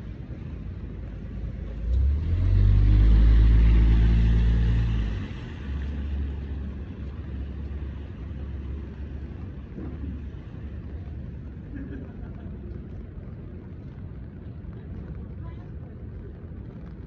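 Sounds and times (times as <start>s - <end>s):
car engine rumbling past: 1.0s - 10.9s
tyres hissing on wet road: 1.1s - 12.2s.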